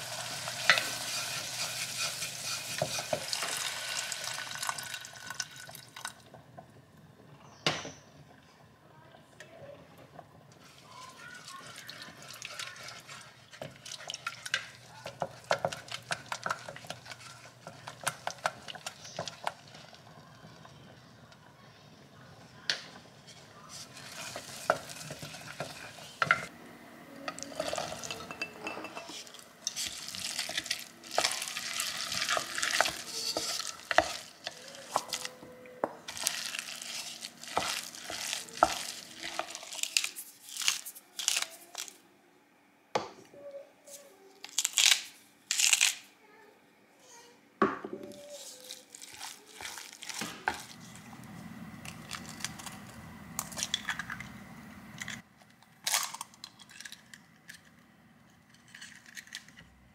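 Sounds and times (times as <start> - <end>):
spatula scraping metal pot: 0.6 - 3.6, 27.3 - 35.3.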